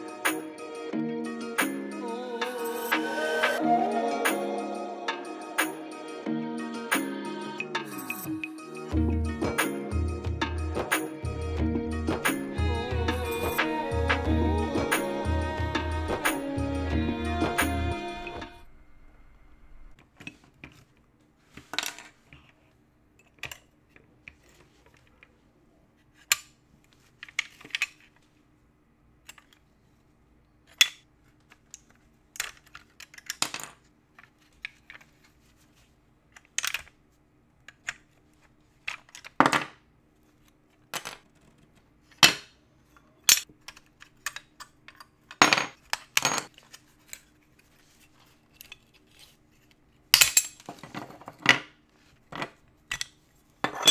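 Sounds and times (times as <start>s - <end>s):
faint steady hum: 11.2s - 53.9s
model car parts clicking and scraping: 30.6s - 35.4s, 40.3s - 49.8s.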